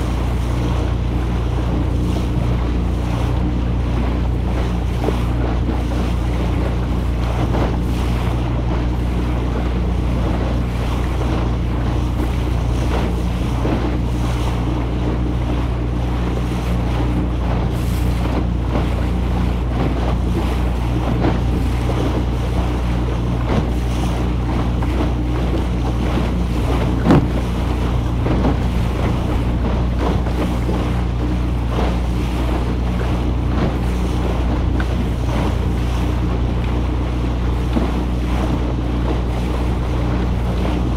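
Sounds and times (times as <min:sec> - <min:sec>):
motorboat engine hum: 0:00.0 - 0:40.9
water rushing along hull: 0:00.0 - 0:40.9
waves slapping against bow: 0:00.0 - 0:40.9
wind buffeting microphone: 0:00.0 - 0:40.9
sharp knock: 0:27.0 - 0:27.4.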